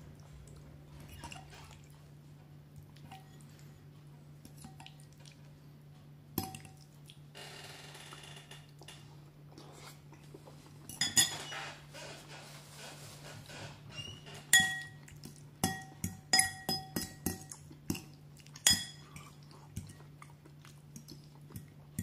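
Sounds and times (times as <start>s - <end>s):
fork clinking on ceramic bowl: 10.9s - 11.4s, 14.5s - 15.0s, 15.6s - 17.6s, 18.6s - 20.0s.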